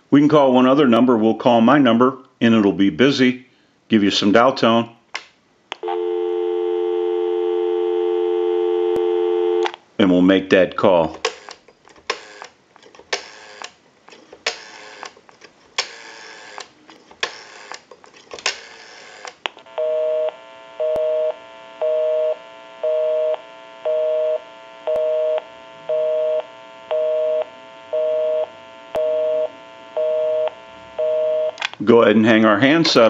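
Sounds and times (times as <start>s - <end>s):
rotary dial pulse clicks: 11.2s - 15.2s, 15.8s - 17.8s
two-tone busy signal beeps: 19.8s - 31.6s.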